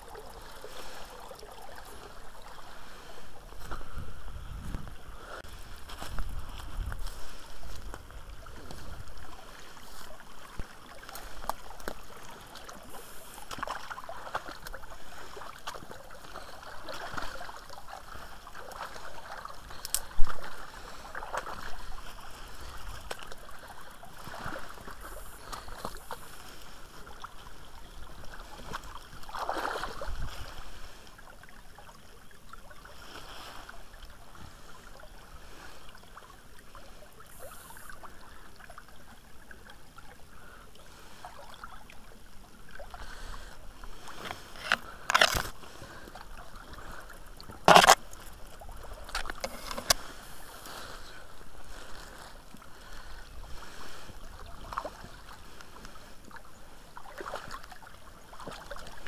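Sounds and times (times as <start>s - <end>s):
brook trickling and gurgling: 0.0s - 59.0s
leaves and branches rustling: 2.7s - 13.7s, 43.1s - 46.1s.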